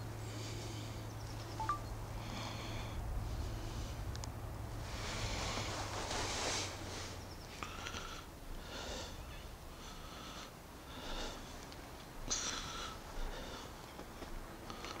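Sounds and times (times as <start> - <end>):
person breathing through nose: 7.6 - 11.6.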